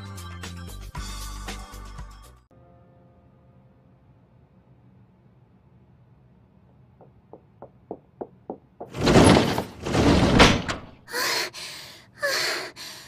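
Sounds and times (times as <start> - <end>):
quick footsteps tapping: 7.0 - 9.0
sliding door rattling and slamming: 8.8 - 11.0.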